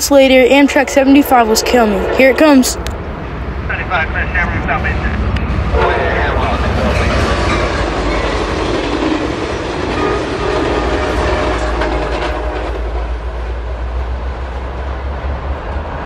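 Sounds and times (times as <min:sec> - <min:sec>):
train wheels clattering on rails: 0:05.0 - 0:15.9.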